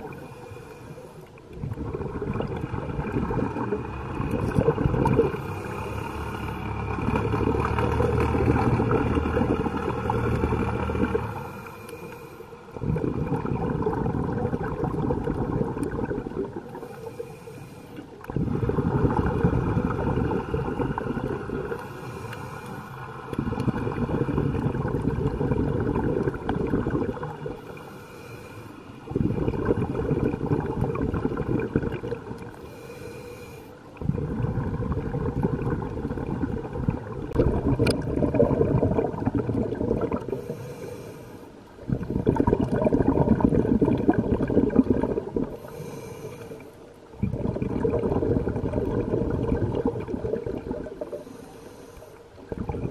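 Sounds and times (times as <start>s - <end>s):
exhaled bubbles rushing: 0.0s - 0.4s, 1.4s - 11.7s, 12.7s - 17.2s, 18.2s - 27.8s, 29.1s - 32.7s, 33.9s - 40.8s, 41.7s - 46.0s, 46.9s - 51.4s, 52.3s - 52.9s
regulator inhalation hiss: 51.2s - 52.2s.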